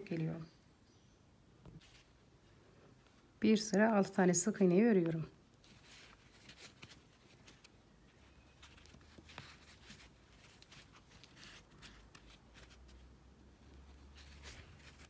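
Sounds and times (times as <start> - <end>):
crochet hook scratching yarn: 5.0 - 15.0.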